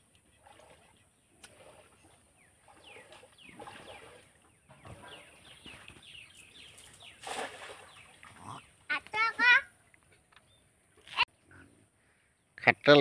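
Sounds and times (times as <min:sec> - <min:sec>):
faint birds chirping: 0:00.0 - 0:13.0
net splashing into water: 0:00.4 - 0:04.4, 0:07.2 - 0:08.4.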